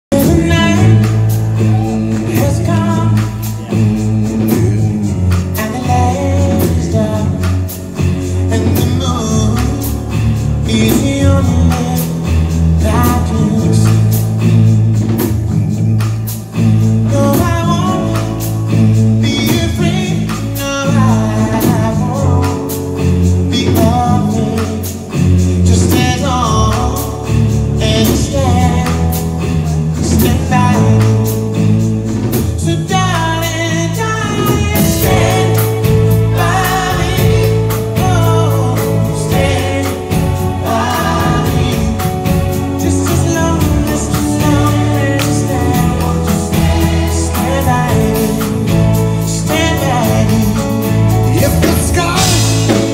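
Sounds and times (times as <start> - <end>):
live band with bass and drums: 0.0 - 52.9
men singing in close harmony: 34.2 - 48.7.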